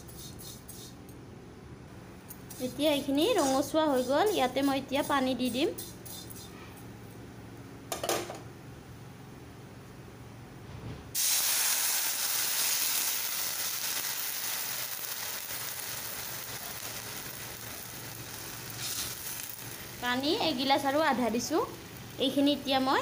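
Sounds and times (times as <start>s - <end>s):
water sizzling in hot oil: 11.2s - 23.0s.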